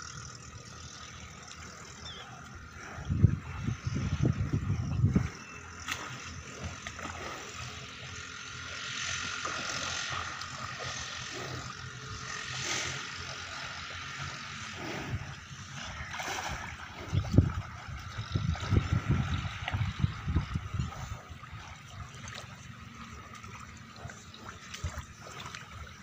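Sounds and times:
water sloshing and splashing: 12.9s - 26.0s.

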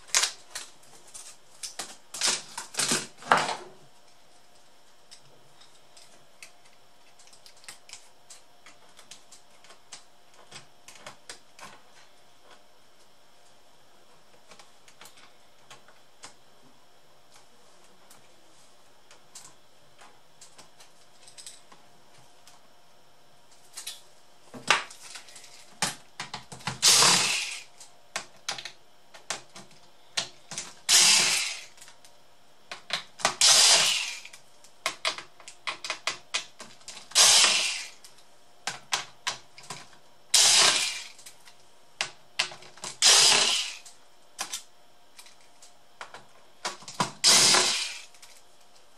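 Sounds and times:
electric screwdriver running: 26.8s - 27.7s, 30.9s - 31.7s, 33.4s - 34.3s, 37.1s - 38.0s, 40.4s - 41.2s, 43.0s - 43.9s, 47.2s - 48.2s.

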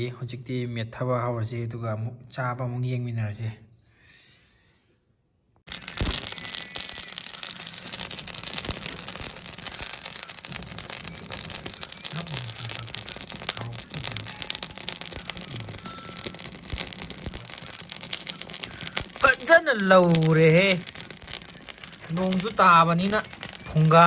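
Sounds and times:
wood fire crackling: 5.7s - 24.0s.

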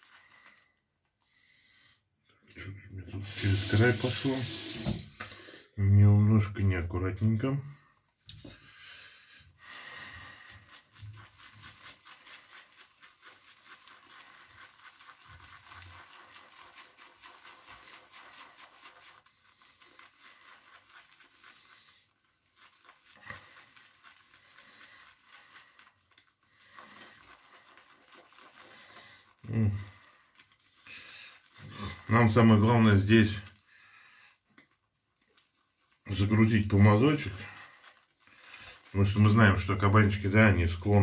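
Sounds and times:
shaving brush swishing lather: 0.0s - 0.8s, 3.2s - 5.8s, 9.8s - 41.0s.

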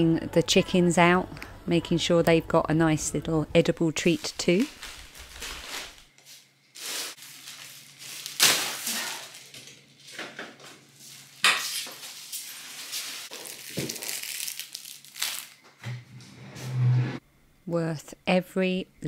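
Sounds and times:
plastic bags rustling: 4.0s - 15.8s.

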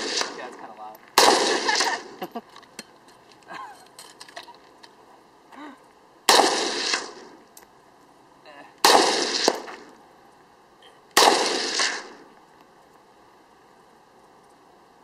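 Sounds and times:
rifle shots echoing: 0.0s - 2.2s, 6.3s - 7.4s, 8.8s - 10.0s, 11.2s - 12.3s.

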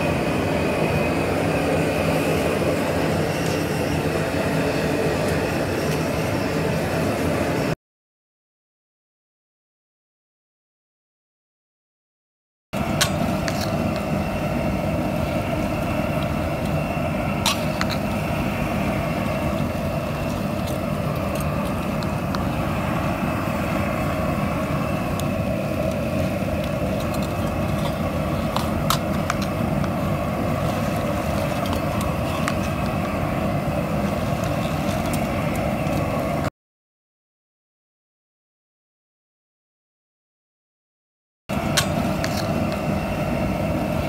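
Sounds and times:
pot boiling over burner: 0.0s - 7.7s, 12.8s - 36.5s, 41.5s - 44.0s.

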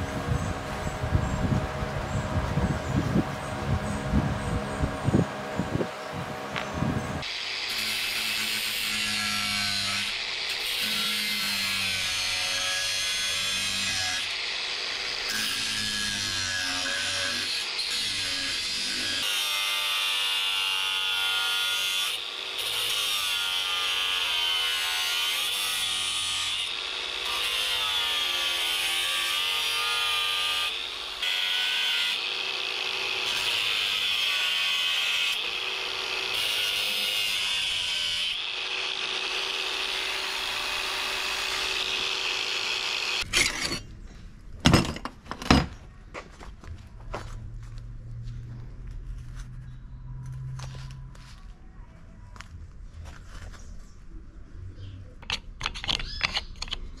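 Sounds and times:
angle grinder cutting steel: 7.2s - 43.9s.

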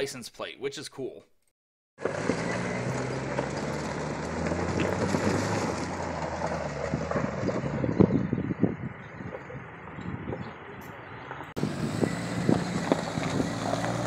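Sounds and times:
engine pulling under load: 2.0s - 10.4s, 11.3s - 14.0s
gravel crunching under tyres: 2.0s - 14.0s.

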